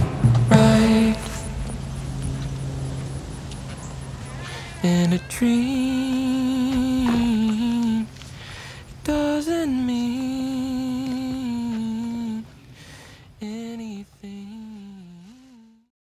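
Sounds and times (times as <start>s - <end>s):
person humming held notes: 0.0s - 2.2s, 4.4s - 8.3s, 9.0s - 12.5s.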